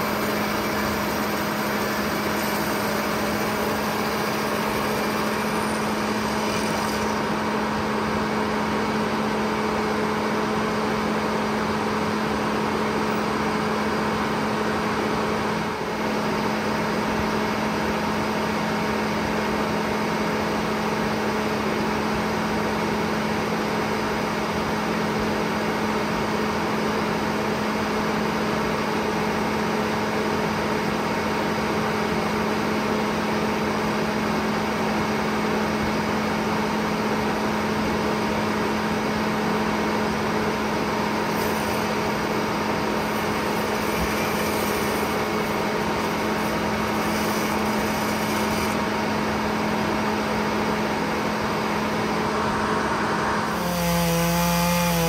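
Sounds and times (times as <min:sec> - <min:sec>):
engine running steadily: 0:00.0 - 0:55.0.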